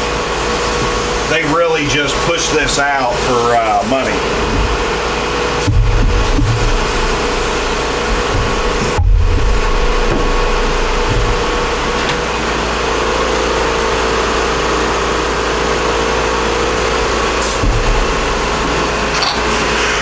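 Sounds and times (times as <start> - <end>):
air compressor running: 0.0 - 20.0
dull low bump: 4.2 - 13.2, 16.8 - 19.2.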